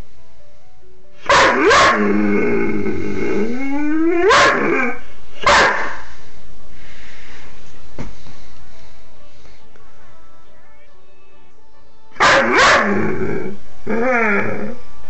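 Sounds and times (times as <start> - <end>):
dog barking: 1.2 - 2.1, 4.2 - 4.8, 5.4 - 6.1, 12.2 - 13.1
dog grumbling call: 1.6 - 5.1, 12.4 - 14.8.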